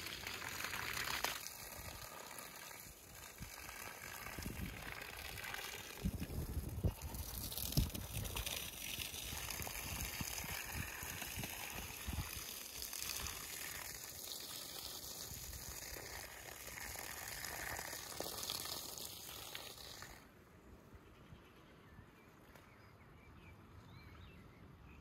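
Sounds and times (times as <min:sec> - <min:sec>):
garden hose spraying water: 0:00.0 - 0:20.3.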